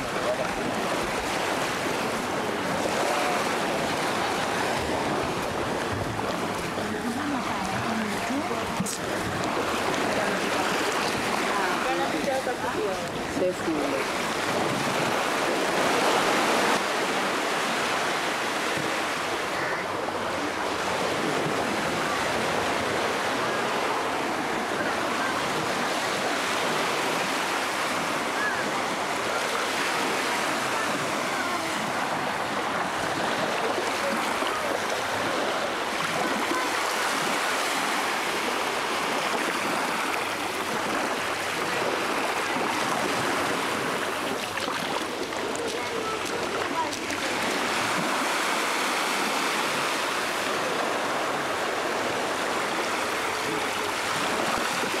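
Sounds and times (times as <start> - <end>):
small waves washing onto sand: 0.0 - 55.0.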